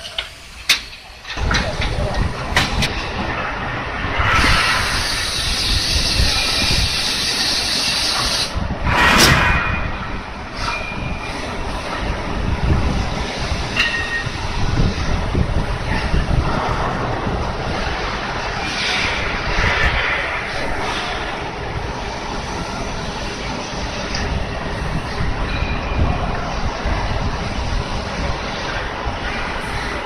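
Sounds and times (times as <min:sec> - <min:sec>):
coolant spraying hiss: 0:04.2 - 0:09.0.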